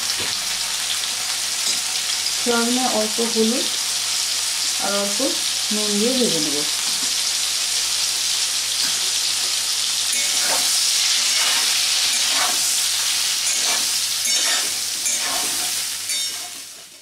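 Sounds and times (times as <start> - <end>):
food sizzling in hot oil: 0.0 - 17.0
metal spatula scraping pan: 10.2 - 16.9.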